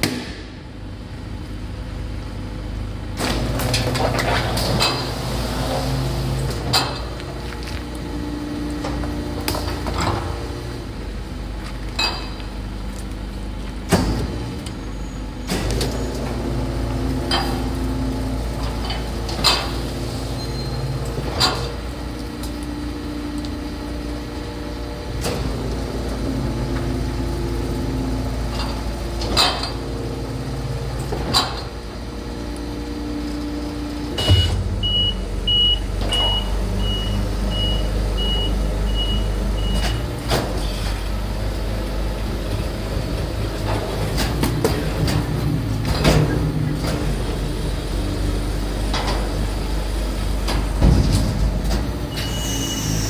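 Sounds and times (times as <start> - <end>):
garbage truck engine humming: 0.0 - 53.0
hydraulic whine: 13.9 - 41.2, 44.9 - 53.0.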